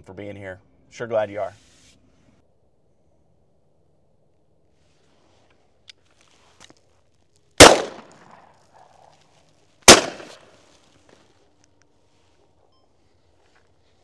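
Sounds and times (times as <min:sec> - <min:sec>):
shotgun shots: 0:07.6 - 0:08.4, 0:09.9 - 0:10.5.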